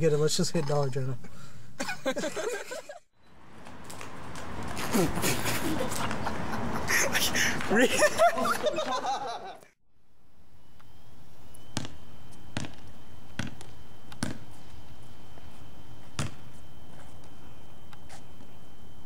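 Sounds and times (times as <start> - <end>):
basketball bouncing on wet pavement: 11.8 - 14.4, 16.2 - 16.4.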